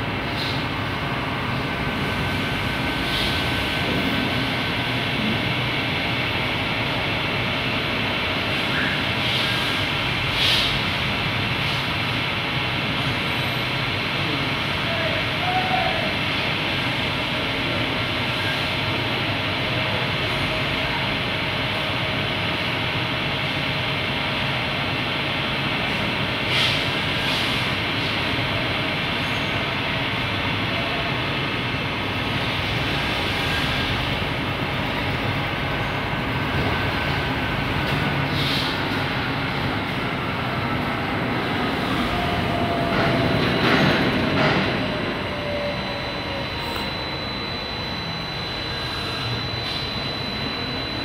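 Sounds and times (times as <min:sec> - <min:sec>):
faint high tone: 0:44.9 - 0:51.0.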